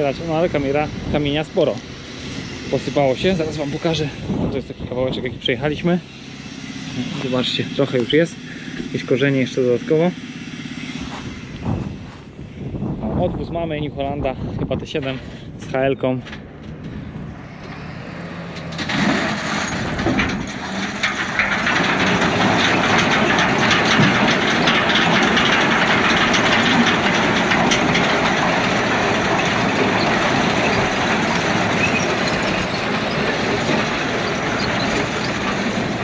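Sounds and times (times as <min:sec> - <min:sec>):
tractor engine: 0:00.0 - 0:36.0
stones rattling through drum: 0:18.9 - 0:36.0.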